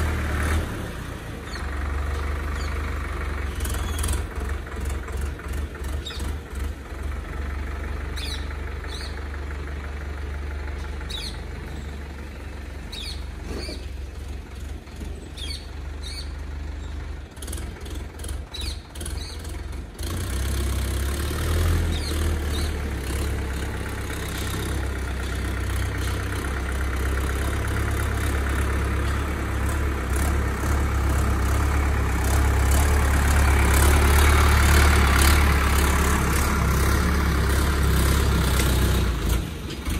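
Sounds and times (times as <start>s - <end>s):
tractor diesel engine running: 0.0s - 39.9s
small birds chirping: 1.4s - 2.8s, 3.4s - 4.2s, 5.7s - 6.4s, 8.1s - 9.3s, 10.8s - 14.1s, 15.0s - 17.0s, 18.5s - 19.6s, 21.9s - 22.9s, 25.1s - 26.5s.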